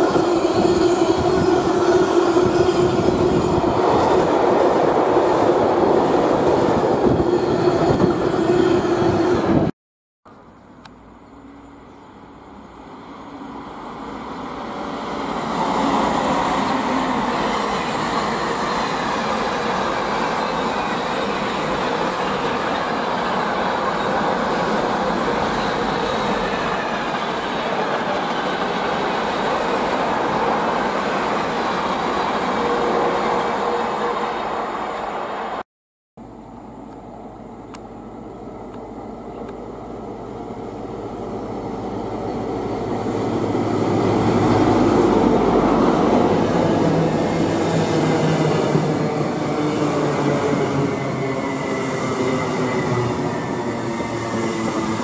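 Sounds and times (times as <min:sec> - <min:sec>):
diesel train approaching: 0:00.0 - 0:09.7, 0:11.4 - 0:35.6, 0:36.2 - 0:55.0
train wheels rolling on rails: 0:13.8 - 0:35.6, 0:38.6 - 0:55.0.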